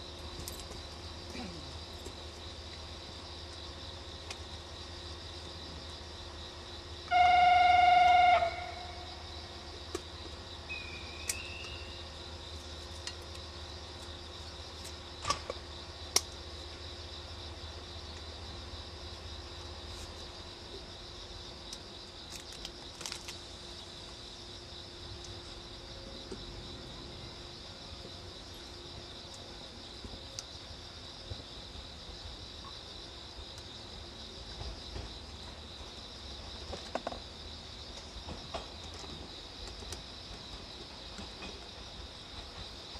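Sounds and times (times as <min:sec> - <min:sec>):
electric train hum: 0:00.0 - 0:42.9
high-pitched insect drone: 0:06.8 - 0:09.8, 0:10.6 - 0:12.6.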